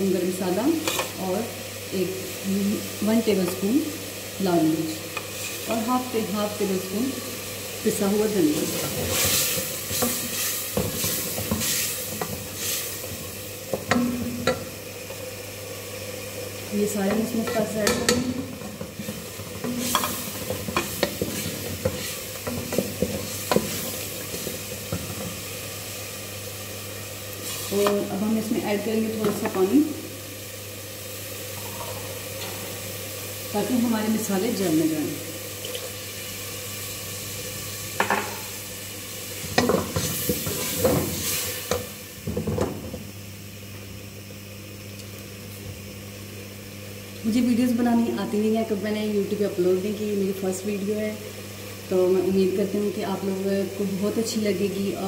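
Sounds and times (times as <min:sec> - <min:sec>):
soft sizzle: 0:00.0 - 0:55.0
wooden spoon knocking and scraping pot: 0:17.1 - 0:25.4.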